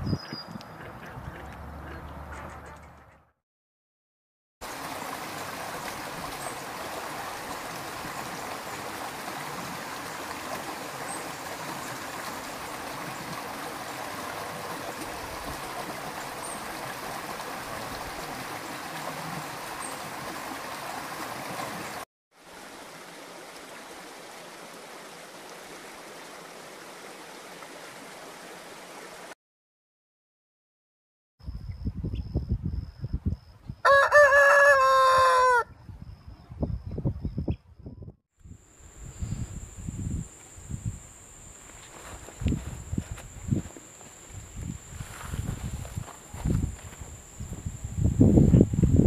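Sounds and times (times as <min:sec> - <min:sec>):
pond water running and splashing: 0:04.6 - 0:29.3
steady hiss: 0:38.5 - 0:49.0.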